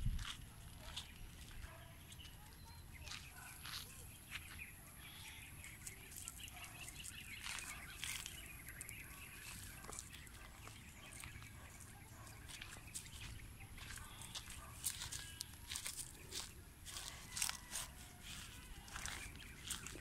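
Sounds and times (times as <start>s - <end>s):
dry leaves crackling and rustling: 5.8s - 11.3s, 12.5s - 20.0s.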